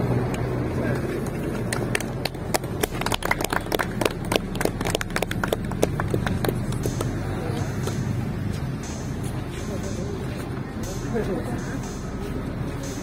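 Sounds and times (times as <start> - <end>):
low steady hum: 0.0 - 13.0
small group clapping: 1.6 - 8.0.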